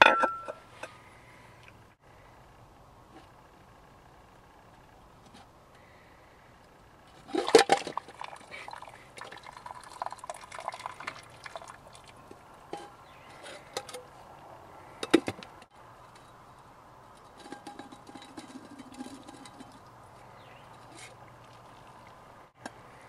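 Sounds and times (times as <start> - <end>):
metal pot and lid clanking: 0.0 - 0.6, 17.2 - 19.8
water splashing and trickling: 7.2 - 13.7, 18.9 - 23.0.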